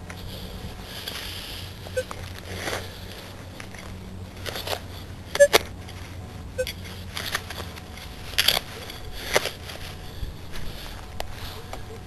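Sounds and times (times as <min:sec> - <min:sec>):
metal detector beeps: 0:01.9 - 0:02.2, 0:05.4 - 0:05.6, 0:06.6 - 0:06.8.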